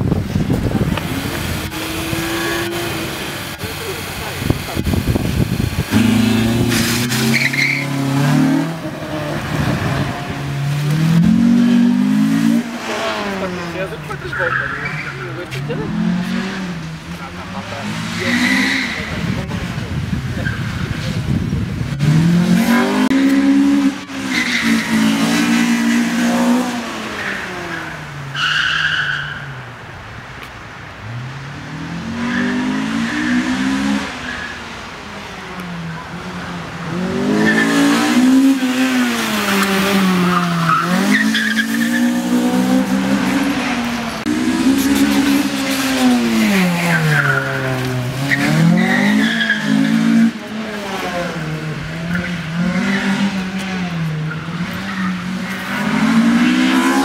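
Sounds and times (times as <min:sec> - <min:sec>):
car engine revving: 0:00.0 - 0:29.2, 0:31.0 - 0:57.0
tyre squeals: 0:07.2 - 0:08.1.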